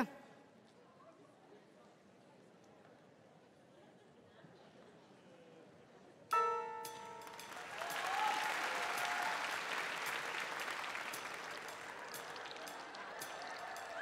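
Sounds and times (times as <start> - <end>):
bell-like chime: 6.3 - 8.0
audience applause: 7.0 - 14.0.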